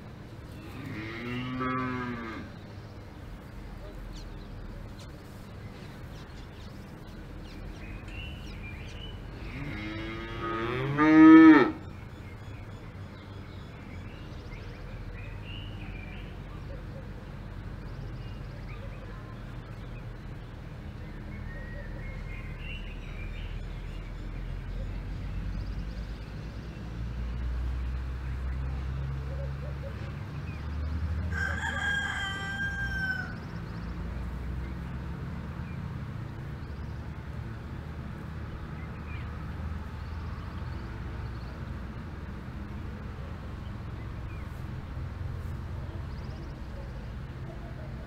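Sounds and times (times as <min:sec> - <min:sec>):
cow mooing: 0:00.6 - 0:02.5, 0:09.4 - 0:11.8.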